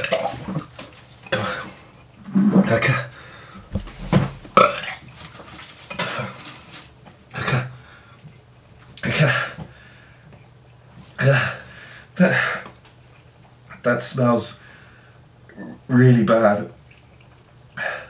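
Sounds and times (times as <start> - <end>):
man retching and gagging: 0.0 - 3.1, 4.1 - 5.1, 7.3 - 7.8, 11.2 - 11.6.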